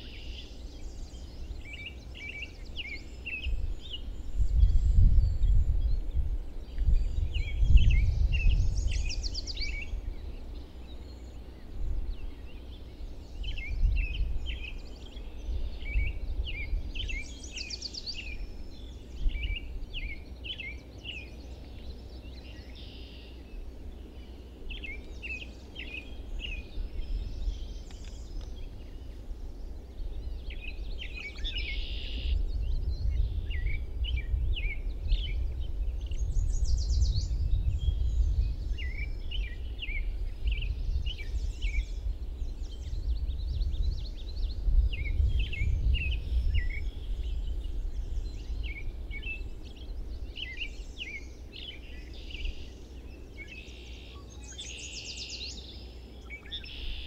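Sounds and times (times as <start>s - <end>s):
songbirds chirping: 0.0s - 57.0s
bird trill: 48.6s - 57.0s.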